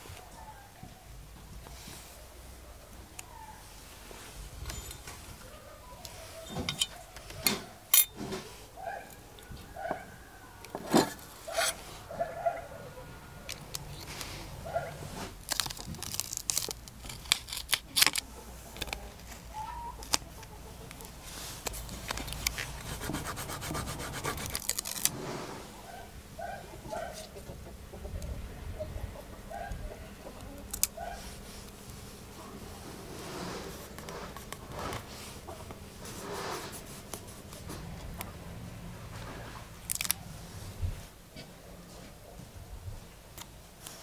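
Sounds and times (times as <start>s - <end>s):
paper and tape rustling: 13.5s - 25.3s.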